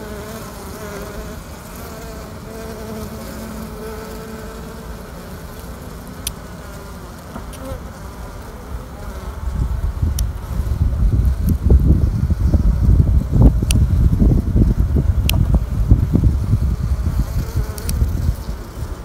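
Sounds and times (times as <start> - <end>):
bees buzzing: 0.0 - 19.0
faint ticks: 17.7 - 18.1.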